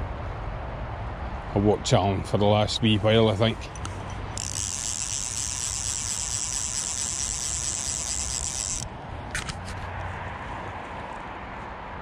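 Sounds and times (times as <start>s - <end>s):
wind: 0.0s - 12.0s
fishing reel ratchet buzzing: 3.7s - 9.5s.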